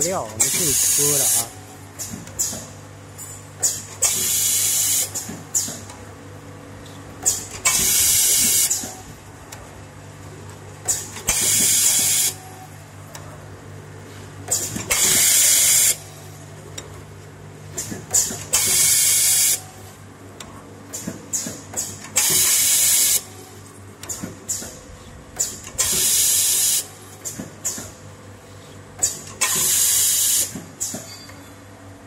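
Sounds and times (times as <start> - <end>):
machine humming: 0.0 - 21.0.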